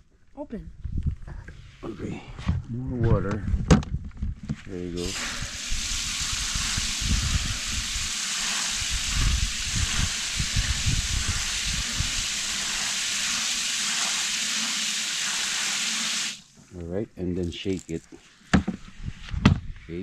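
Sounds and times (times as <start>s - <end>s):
water spraying from hose nozzle: 5.0s - 16.6s.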